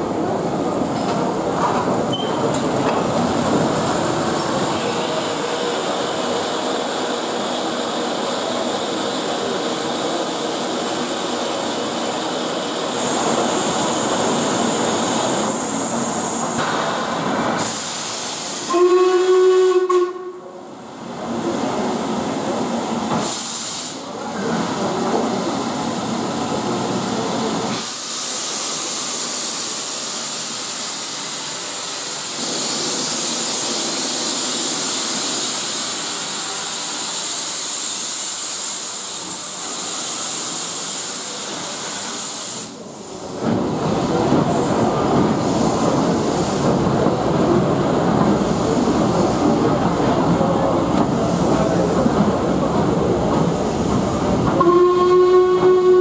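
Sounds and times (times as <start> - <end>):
steam hissing: 0.0 - 20.3, 21.0 - 56.0
steam whistle blast: 18.6 - 20.5, 54.6 - 56.0.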